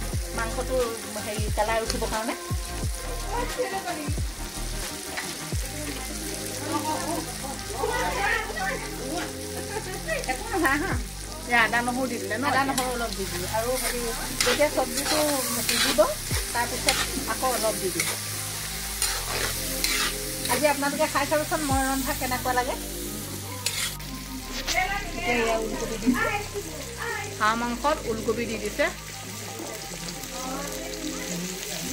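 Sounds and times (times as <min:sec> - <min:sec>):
food frying and sizzling: 0:00.0 - 0:31.9
metal spoon scraping a wok: 0:13.8 - 0:20.7, 0:23.6 - 0:24.8.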